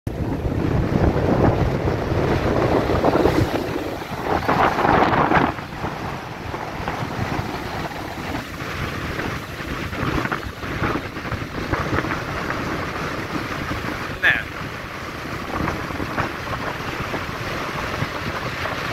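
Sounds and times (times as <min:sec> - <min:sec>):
surf breaking against jetty: 0:00.1 - 0:18.9
wind buffeting microphone: 0:00.1 - 0:18.9.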